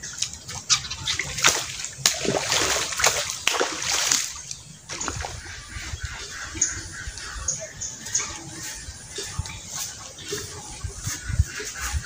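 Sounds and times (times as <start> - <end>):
fish splashing in water: 0.0 - 6.6.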